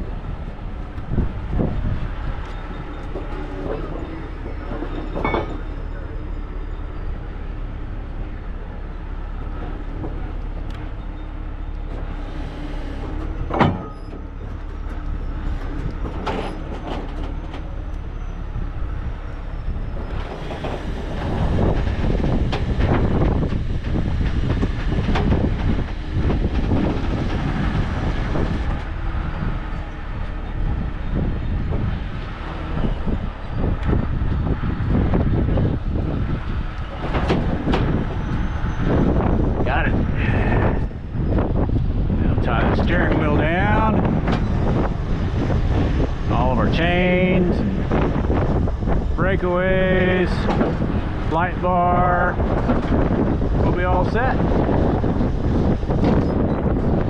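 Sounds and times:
metal clanks: 0:02.4 - 0:05.8.

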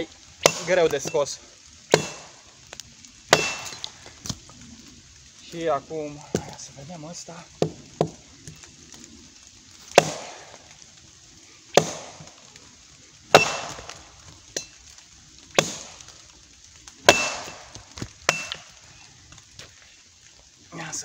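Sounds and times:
machete chopping wood: 0:00.4 - 0:01.2, 0:01.9 - 0:02.3, 0:03.3 - 0:03.9, 0:09.9 - 0:10.6, 0:11.8 - 0:12.2, 0:13.3 - 0:14.0, 0:15.6 - 0:16.0, 0:17.1 - 0:18.7.

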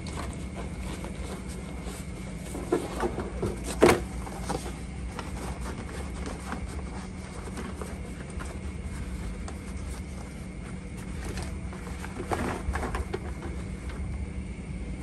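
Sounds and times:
light handling noises: 0:00.0 - 0:14.2
steady background hum: 0:00.0 - 0:15.0.

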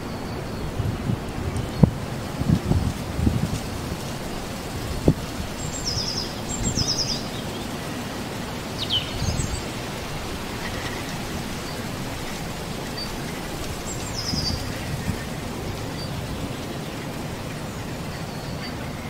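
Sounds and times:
wind hiss: 0:00.0 - 0:19.0
small birds calling: 0:04.7 - 0:19.0.

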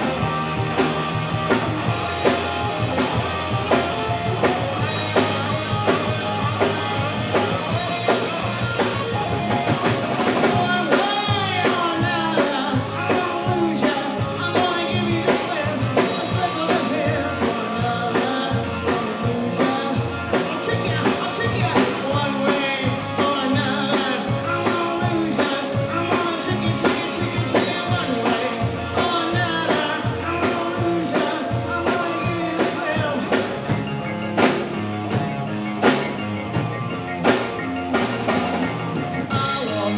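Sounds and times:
bass guitar: 0:00.0 - 0:39.9
drum kit: 0:00.0 - 0:39.9
electric guitar: 0:00.0 - 0:39.9
person singing lead vocal: 0:02.1 - 0:09.4, 0:10.2 - 0:33.9, 0:39.2 - 0:39.9.

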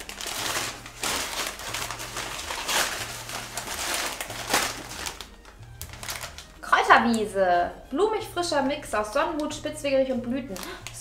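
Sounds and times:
newspaper rustling: 0:00.0 - 0:07.2
plastic bag crinkling: 0:00.0 - 0:07.3, 0:10.4 - 0:11.0.

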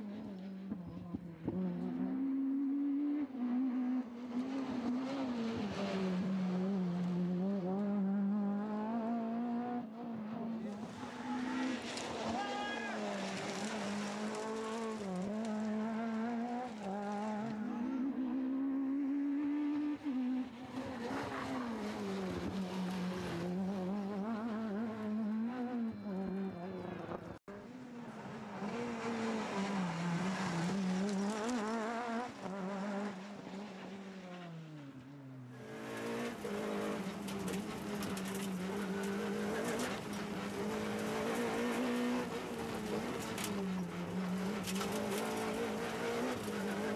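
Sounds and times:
rally car engine revving hard: 0:00.0 - 0:12.3, 0:13.0 - 0:26.8, 0:28.2 - 0:34.4, 0:35.6 - 0:46.9.

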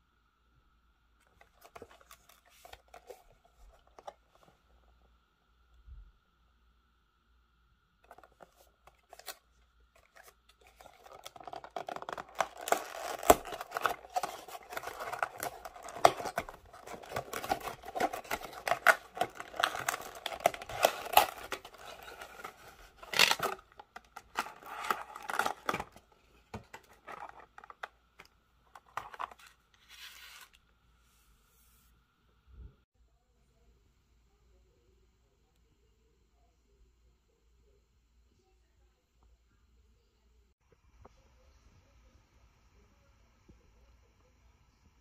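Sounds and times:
packaging scratching and crinkling: 0:10.0 - 0:27.9, 0:28.8 - 0:30.6
loud plastic crackle: 0:10.8 - 0:26.0.

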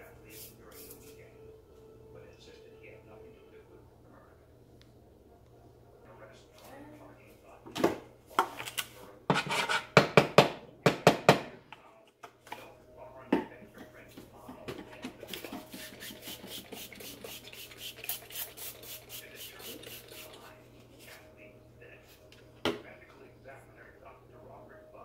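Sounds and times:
spray bottle spritzes: 0:15.7 - 0:20.4.

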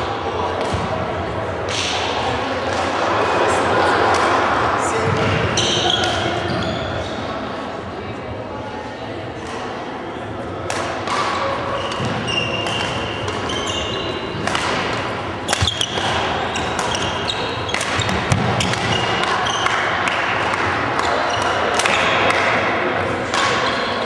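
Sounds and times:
shoes squeaking on floor: 0:05.6 - 0:07.4, 0:11.7 - 0:14.4, 0:15.5 - 0:19.7
racket hitting shuttlecock: 0:10.7 - 0:24.0.

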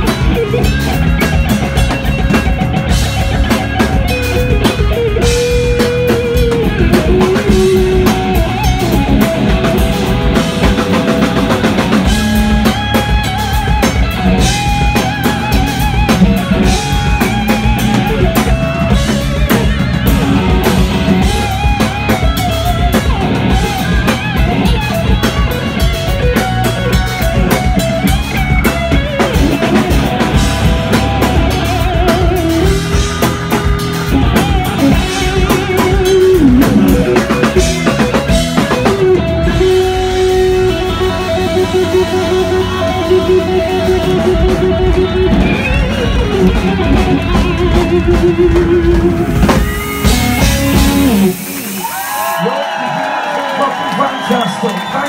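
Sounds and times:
bass guitar: 0:00.0 - 0:55.0
drum kit: 0:00.0 - 0:55.0
electric guitar lead: 0:00.0 - 0:55.0.

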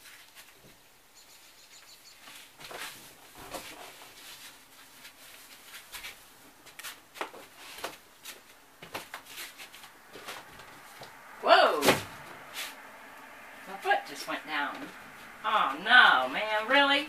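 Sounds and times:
rustling of handling things: 0:00.0 - 0:00.9, 0:02.1 - 0:11.2.

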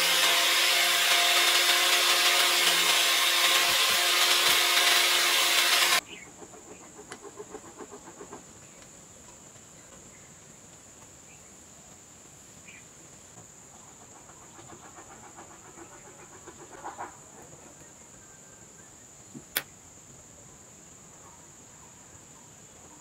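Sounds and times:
steady high hiss: 0:08.4 - 0:14.0, 0:17.7 - 0:23.0
sharp click: 0:19.4 - 0:19.7.

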